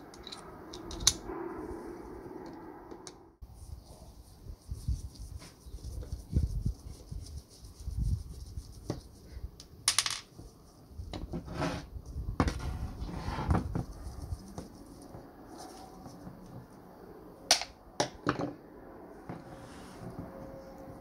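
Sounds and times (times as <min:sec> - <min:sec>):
metal parts clinking and knocking: 0:00.0 - 0:01.3.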